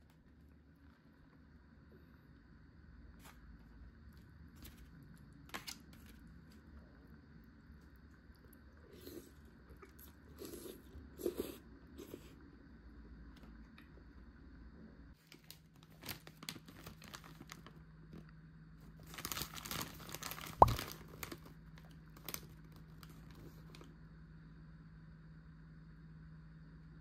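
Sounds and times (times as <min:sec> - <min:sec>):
food packaging crinkling and tearing: 0:04.5 - 0:06.7, 0:15.2 - 0:17.8, 0:18.9 - 0:23.9.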